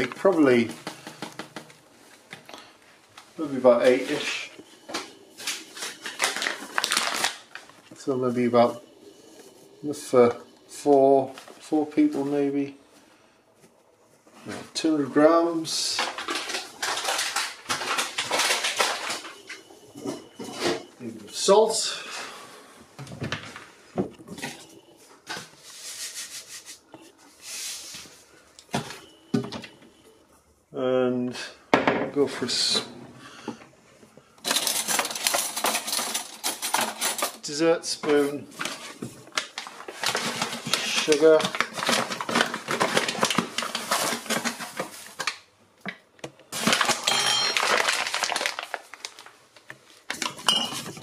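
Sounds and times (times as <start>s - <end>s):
paper bag rustling: 0.0s - 22.4s, 34.4s - 45.4s, 46.5s - 51.0s.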